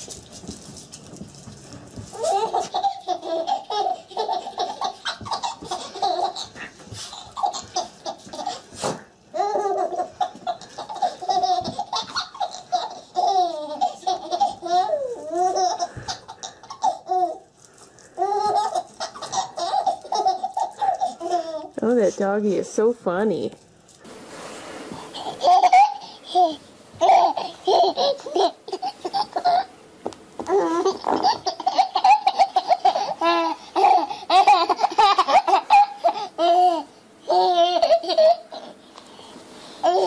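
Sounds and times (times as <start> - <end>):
baby laughing: 2.1 - 17.5, 18.2 - 21.8, 25.1 - 29.7, 30.5 - 38.8.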